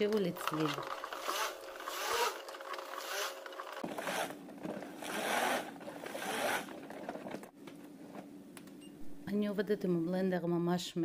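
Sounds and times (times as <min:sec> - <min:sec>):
motor hum: 0:00.0 - 0:07.5
stick blender churning liquid: 0:00.0 - 0:07.5.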